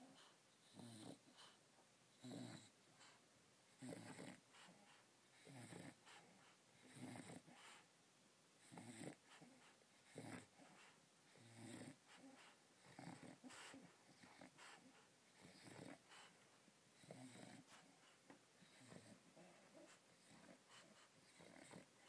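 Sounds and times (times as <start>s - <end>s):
dog breathing noisily in sleep: 3.8s - 7.9s, 8.6s - 22.0s.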